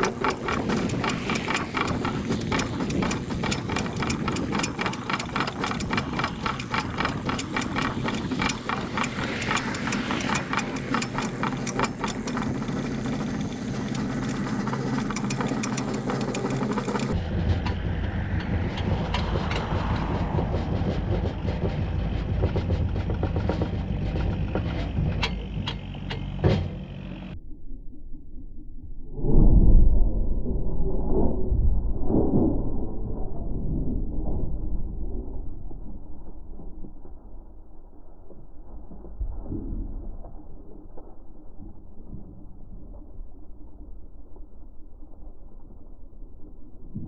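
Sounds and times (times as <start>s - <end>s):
rapid clicking rattle: 0.0s - 17.8s
distant diesel engine running: 0.0s - 27.4s.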